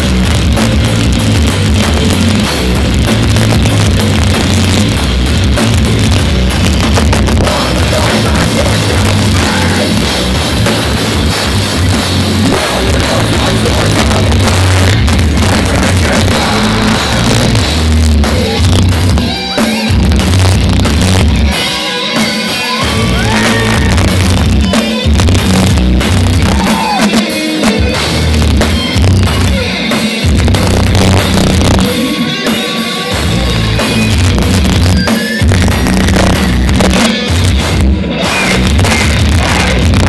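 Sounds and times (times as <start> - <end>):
bass guitar: 0.0 - 40.0
distorted electric guitars: 0.0 - 40.0
pounding drum kit: 0.0 - 40.0.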